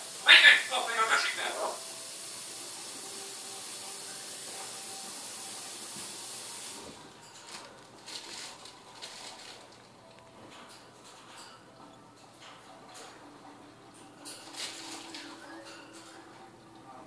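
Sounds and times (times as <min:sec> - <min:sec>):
steady hiss: 0:00.0 - 0:09.7.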